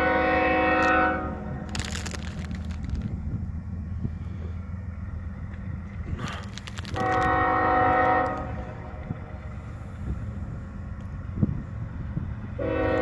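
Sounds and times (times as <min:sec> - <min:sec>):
air horn blast: 0:00.0 - 0:01.6, 0:06.9 - 0:08.9, 0:12.6 - 0:13.0
diesel locomotive rumbling: 0:00.0 - 0:13.0.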